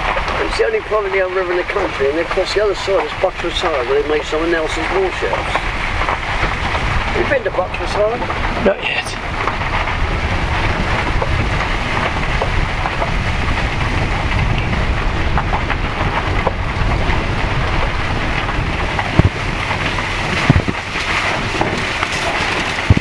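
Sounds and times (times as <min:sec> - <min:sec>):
buggy rumbling: 0:00.0 - 0:23.0
wind noise on microphone: 0:00.0 - 0:23.0
sharp knocks: 0:19.0 - 0:19.4, 0:20.4 - 0:20.8.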